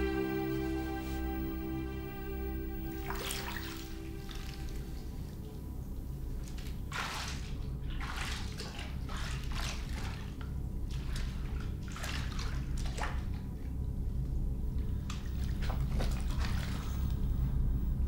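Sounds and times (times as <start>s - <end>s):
low steady hum: 0.0s - 18.0s
bathwater splashing: 6.4s - 13.5s, 15.1s - 17.1s.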